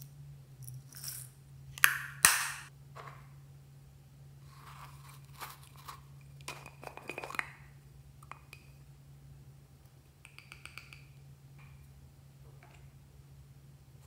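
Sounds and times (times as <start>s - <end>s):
plastic jars clicking on glass: 10.3s - 11.1s.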